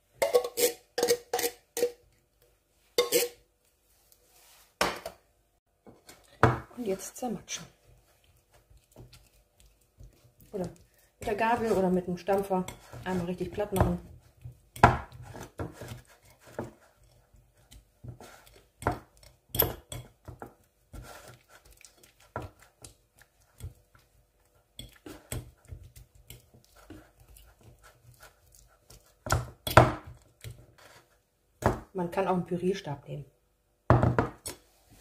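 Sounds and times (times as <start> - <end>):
fork clinking on ceramic plate: 3.0 - 3.4.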